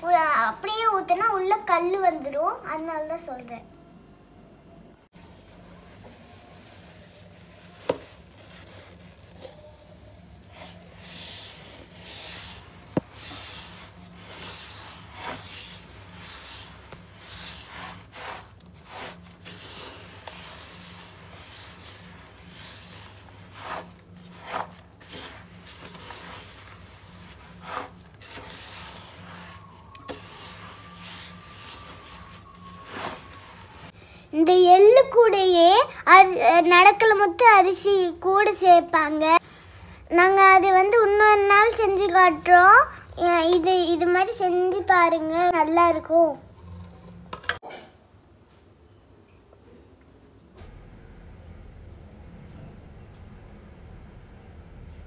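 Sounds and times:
wooden spatula scraping steel pot: 5.9 - 34.0.

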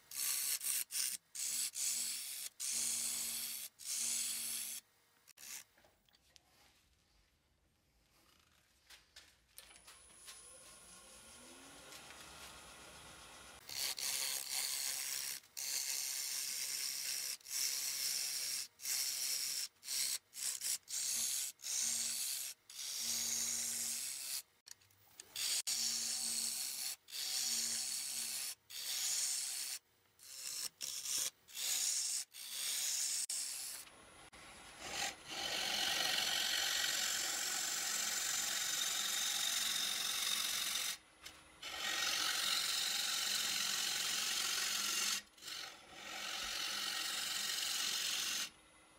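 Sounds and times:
lathe tool scraping wood: 34.4 - 41.0, 41.6 - 48.5.

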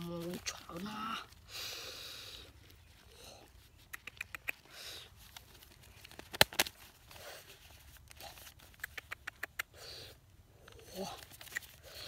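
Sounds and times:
banknotes rustling: 0.0 - 1.6, 5.1 - 8.8
paper snaps: 6.0 - 6.8, 11.3 - 11.8.

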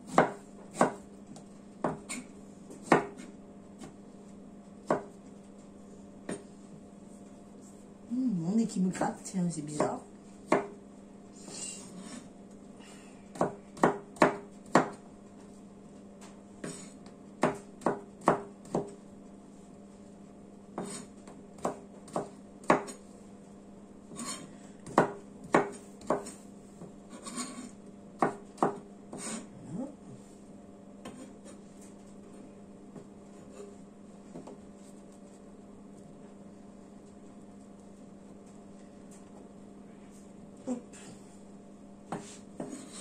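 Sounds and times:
knife chopping on cutting board: 0.1 - 4.0, 4.8 - 5.2, 9.8 - 10.8, 13.3 - 15.0, 16.6 - 19.0, 20.7 - 23.0, 24.1 - 29.5, 31.0 - 31.6, 42.1 - 43.0
knife scraping board: 11.4 - 12.3, 20.8 - 21.2, 24.1 - 24.5, 27.1 - 27.8, 29.1 - 29.5, 31.0 - 31.7, 42.1 - 43.0.

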